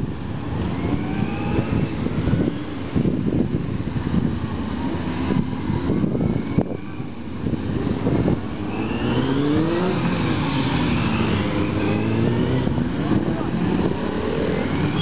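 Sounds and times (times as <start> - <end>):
motorcycle engine revving: 6.9 - 15.0.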